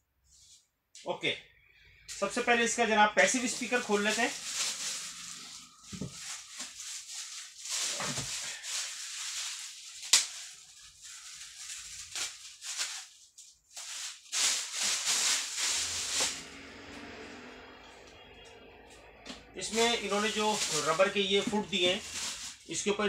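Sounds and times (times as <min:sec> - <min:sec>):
plastic wrapping crinkling: 0:03.2 - 0:17.3, 0:19.6 - 0:23.0
plastic wrapping snapping: 0:03.5 - 0:13.2, 0:13.8 - 0:16.5.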